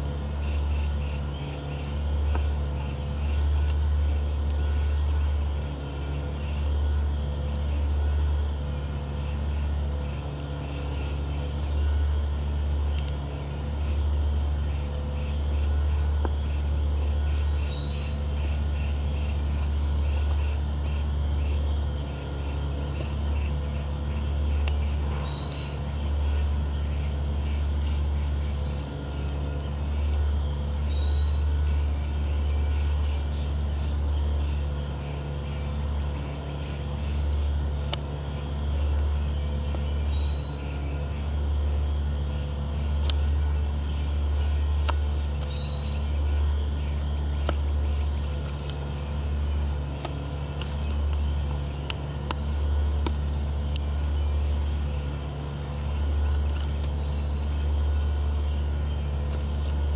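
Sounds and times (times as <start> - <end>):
steady low machine hum: 0.0 - 59.9
bird chip call: 17.3 - 29.2, 39.7 - 41.1, 43.0 - 52.4.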